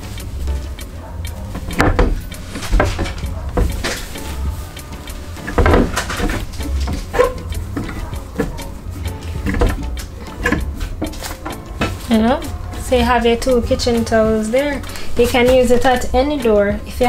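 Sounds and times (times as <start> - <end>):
cloth rustling: 0.0 - 16.1
towel bar knocking on door: 1.5 - 4.5, 5.4 - 8.7.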